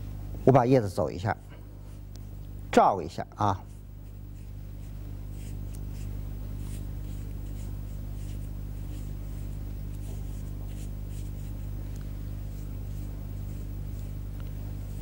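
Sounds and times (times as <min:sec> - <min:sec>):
steady low hum: 0:00.0 - 0:15.0
brush swishing across paper: 0:03.7 - 0:15.0.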